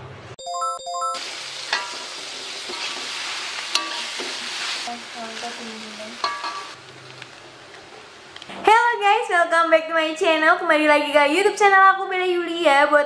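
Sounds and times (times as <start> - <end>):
two-note chime: 0.4 - 1.2
noodles and meat sizzling in a pot: 1.2 - 8.9
metal spatula scraping a pot: 1.7 - 4.9.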